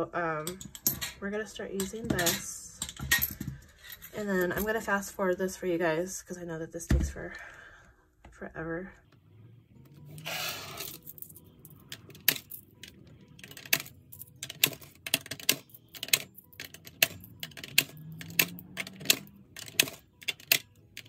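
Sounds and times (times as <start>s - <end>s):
coins clinking into a jar: 0.5s - 1.2s, 10.1s - 21.0s.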